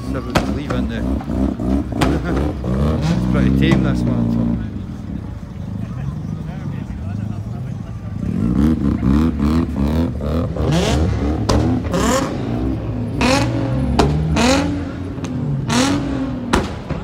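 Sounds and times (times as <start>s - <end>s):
car engine revving: 0.0s - 17.0s
exhaust pops and bangs: 0.2s - 4.2s, 11.4s - 12.0s, 13.2s - 17.0s.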